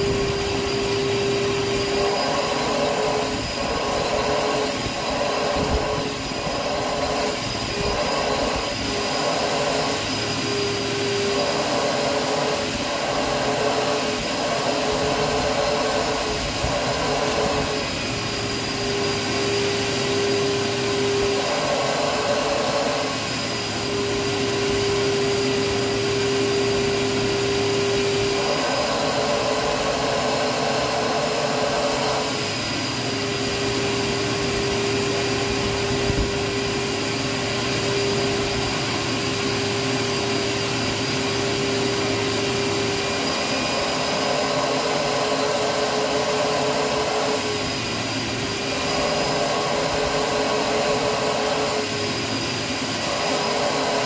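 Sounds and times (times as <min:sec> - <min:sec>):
extraction machine vacuum running: 0:00.0 - 0:54.0.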